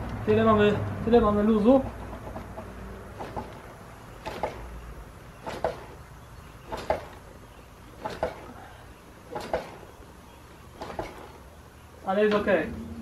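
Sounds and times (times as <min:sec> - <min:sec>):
bike suspension compressing: 0:01.9 - 0:04.7, 0:05.4 - 0:06.0, 0:06.6 - 0:07.3, 0:07.9 - 0:09.9, 0:10.6 - 0:11.5.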